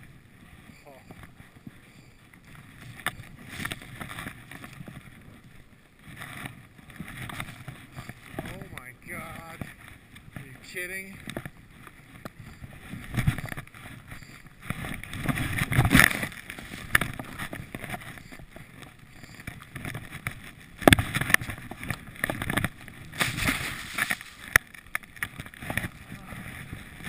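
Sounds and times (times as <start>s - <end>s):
skis cutting through powder snow: 22.8s - 24.5s.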